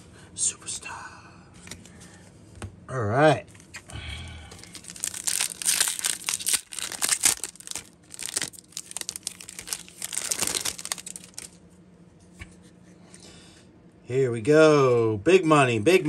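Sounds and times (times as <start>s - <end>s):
foil wrapper crinkling and tearing: 4.5s - 11.6s.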